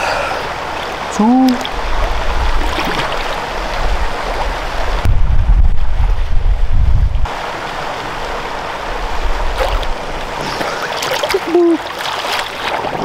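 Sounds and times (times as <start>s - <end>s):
pool water splashing: 0.0s - 5.0s, 7.3s - 13.0s
wind rumble on microphone: 1.6s - 7.4s.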